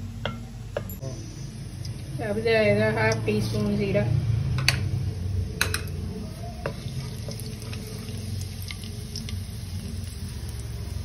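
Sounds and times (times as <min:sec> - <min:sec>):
steady low hum: 0:00.0 - 0:11.0
seeds sizzling in hot oil: 0:05.5 - 0:11.0
wooden spatula stirring in pot: 0:06.4 - 0:09.3.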